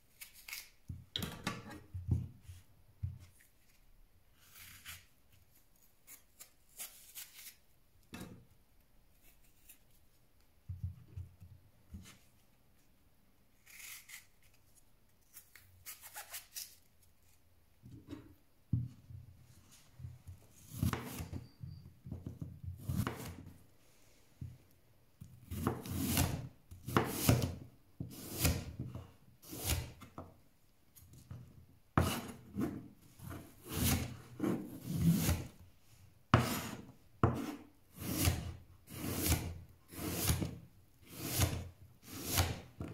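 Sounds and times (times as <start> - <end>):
knife slicing apple: 0.1 - 1.8, 20.5 - 21.4, 22.8 - 23.5, 25.4 - 30.0, 32.0 - 35.6, 36.4 - 42.9.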